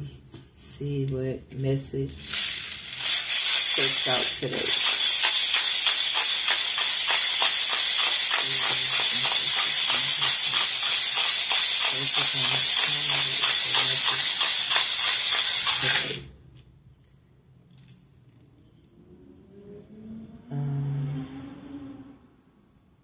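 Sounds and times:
dice rattling in a cup: 0:02.1 - 0:16.3.

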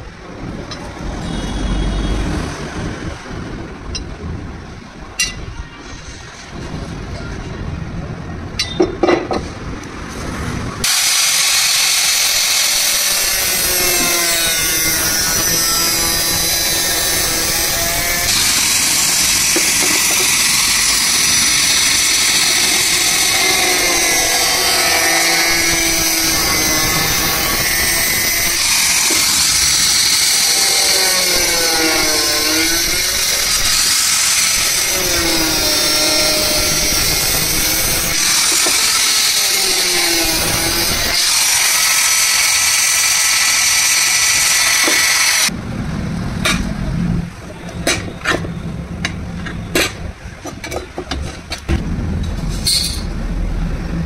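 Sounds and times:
angle grinder cutting metal: 0:10.8 - 0:45.5.

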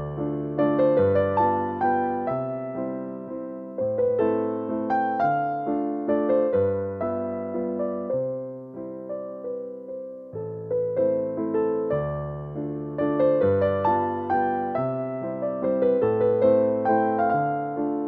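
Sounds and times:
electric piano chords: 0:00.0 - 0:18.0.

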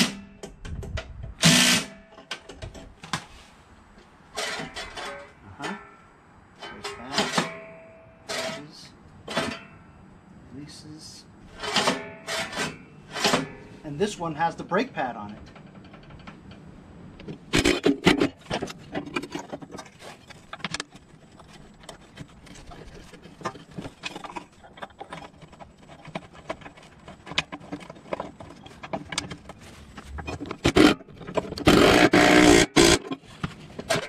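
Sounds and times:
metal clicks knocks and scrapes: 0:02.1 - 0:03.3, 0:04.4 - 0:06.0, 0:15.3 - 0:34.0
metal scraping and rattling: 0:04.3 - 0:06.0, 0:11.5 - 0:14.2, 0:15.4 - 0:34.0.

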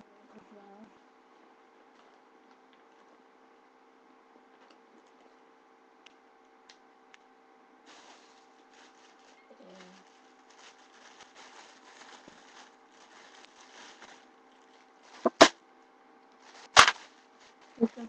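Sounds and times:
rustling of items rummaged: 0:07.9 - 0:15.5, 0:16.4 - 0:18.0
loud crackles: 0:15.1 - 0:15.6, 0:16.5 - 0:17.2.

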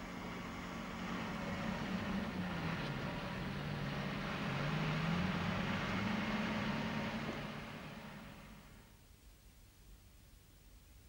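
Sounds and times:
road and wind noise: 0:00.0 - 0:08.9
truck engine running: 0:00.1 - 0:08.8.

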